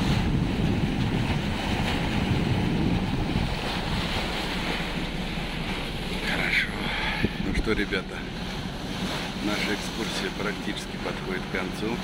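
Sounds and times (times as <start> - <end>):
water rushing past boat: 0.0 - 12.0
wind buffeting microphone: 0.0 - 12.0.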